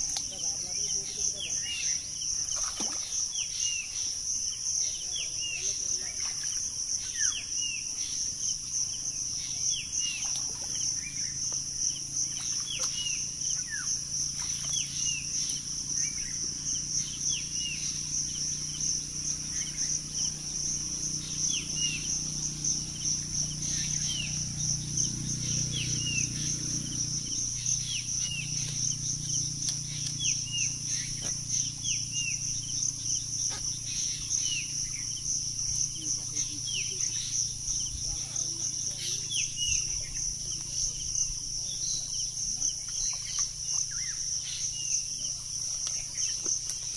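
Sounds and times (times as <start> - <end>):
high-pitched insect chorus: 0.0 - 46.9
bird chirping: 12.2 - 41.0.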